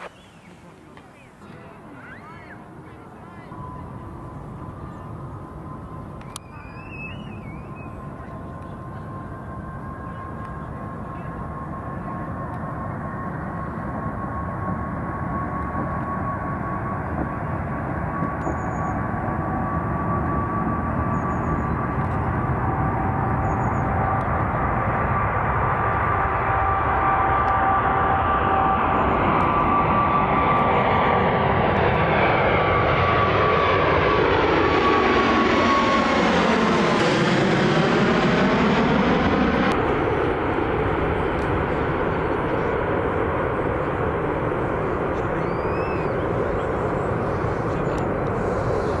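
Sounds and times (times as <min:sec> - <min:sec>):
jet engines passing overhead: 0:00.0 - 0:49.0.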